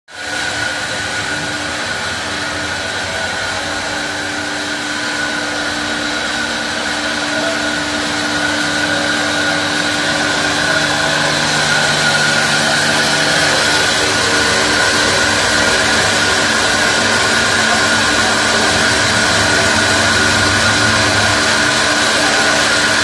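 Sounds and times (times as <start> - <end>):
bandsaw mill whine: 0.1 - 23.0
deep hum: 0.7 - 23.0.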